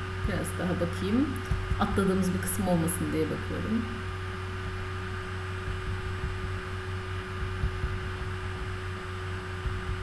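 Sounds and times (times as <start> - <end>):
electrical hum and hiss: 0.0 - 10.0
faint low thumps: 1.4 - 2.3, 5.6 - 6.7, 7.3 - 8.7.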